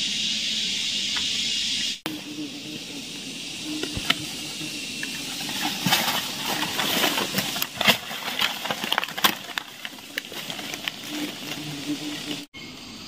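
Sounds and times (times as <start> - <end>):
hands rustling dry leaves: 3.9 - 12.5.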